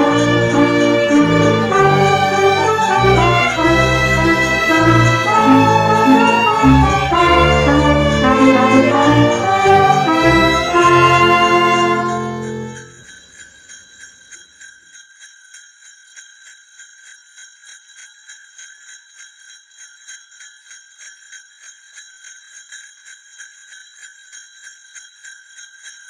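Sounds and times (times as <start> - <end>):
orchestral music: 0.0 - 13.0
sleigh bells jingling: 0.0 - 26.0.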